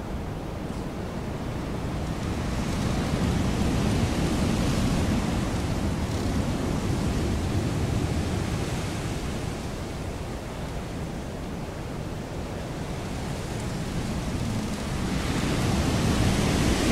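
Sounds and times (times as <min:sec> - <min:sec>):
wind blowing: 0:00.0 - 0:16.9.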